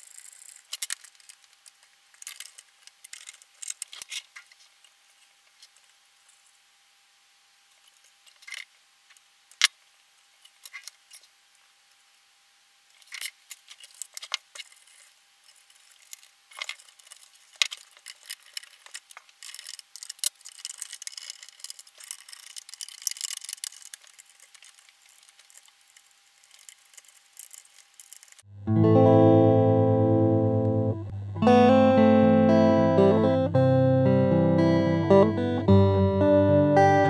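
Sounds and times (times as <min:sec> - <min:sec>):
metal parts clicking and rattling: 0:00.0 - 0:04.6, 0:07.8 - 0:08.7, 0:12.9 - 0:28.4
scraping and rustling: 0:13.0 - 0:28.5.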